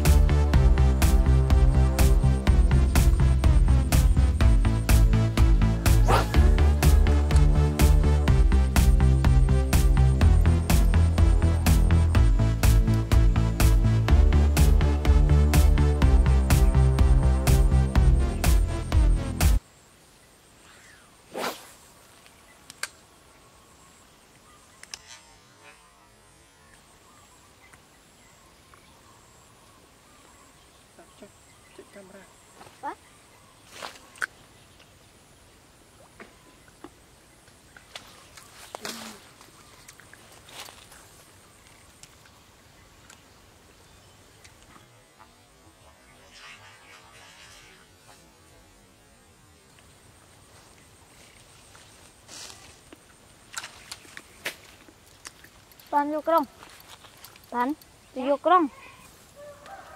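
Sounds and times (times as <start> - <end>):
faint outdoor ambience: 0.0 - 59.9
faint splashing in pond water: 33.6 - 43.6, 52.3 - 57.6.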